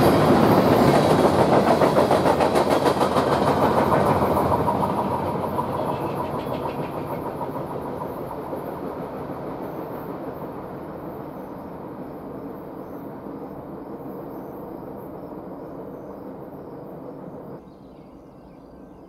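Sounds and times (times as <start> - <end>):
freight train rumbling by: 0.0 - 19.0
insects chirping: 0.0 - 19.0.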